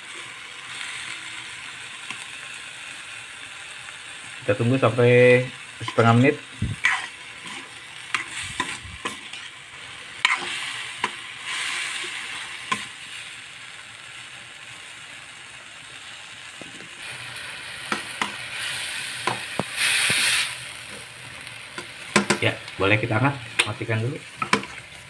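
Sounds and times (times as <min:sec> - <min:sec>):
food sizzling in a wok: 0:00.0 - 0:25.0
metal spatula scraping pan: 0:05.8 - 0:09.6, 0:10.2 - 0:13.0.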